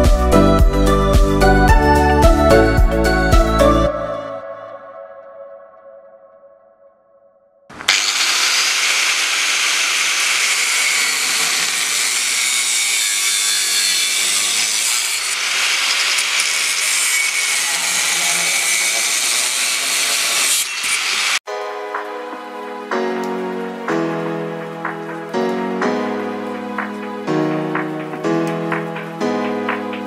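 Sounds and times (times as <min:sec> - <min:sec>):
angle grinder cutting sheet metal: 0:07.7 - 0:21.4.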